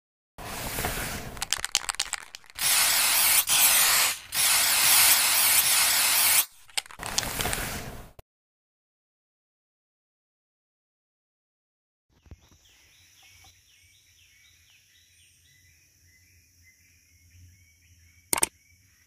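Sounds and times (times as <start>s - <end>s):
spray paint hissing: 0.4s - 8.2s
spray can rattling: 0.5s - 7.9s.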